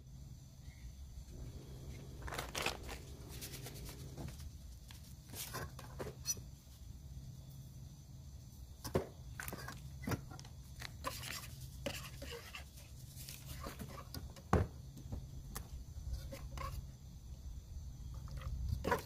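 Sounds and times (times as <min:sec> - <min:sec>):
steady low hum: 0:00.0 - 0:08.8.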